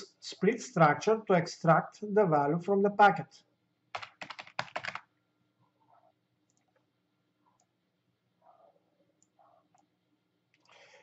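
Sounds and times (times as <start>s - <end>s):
typing on computer keyboard: 3.9s - 5.1s.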